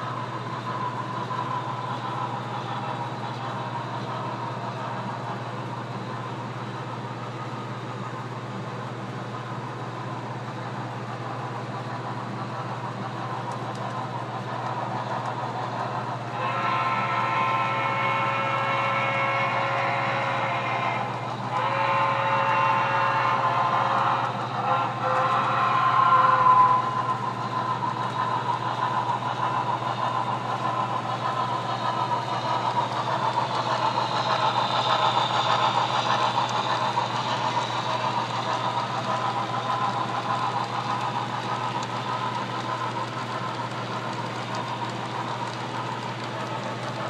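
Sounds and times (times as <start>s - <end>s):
steam locomotive sounds: 0.0s - 47.0s
model freight cars rattling on track: 21.6s - 47.0s.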